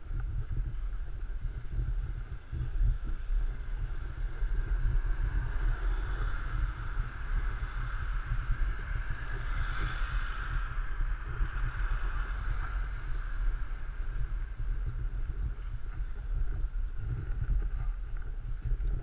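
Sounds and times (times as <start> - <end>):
wind buffeting microphone: 0.0 - 19.0
street traffic hiss: 3.4 - 16.3.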